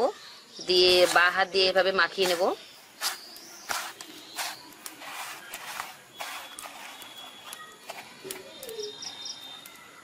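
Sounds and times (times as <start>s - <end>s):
bread crumbs crunching: 2.2s - 8.8s.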